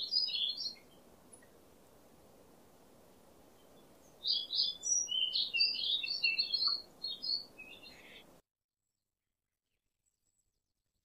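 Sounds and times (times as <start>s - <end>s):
bird singing whistles: 0.0s - 0.8s, 4.2s - 8.2s
faint hiss: 0.0s - 8.4s.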